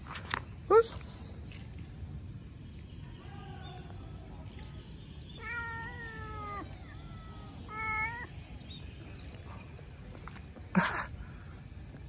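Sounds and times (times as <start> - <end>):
cat meowing: 5.3 - 8.4.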